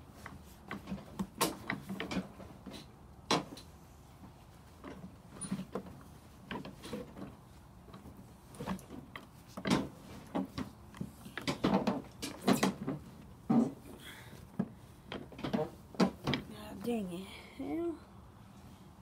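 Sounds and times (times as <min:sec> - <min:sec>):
knocks and rattles of handling: 0:00.0 - 0:16.9.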